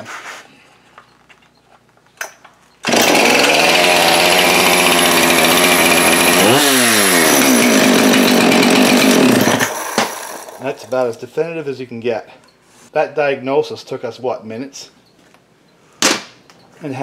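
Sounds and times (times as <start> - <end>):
chainsaw running loud and fast: 2.8 - 10.6.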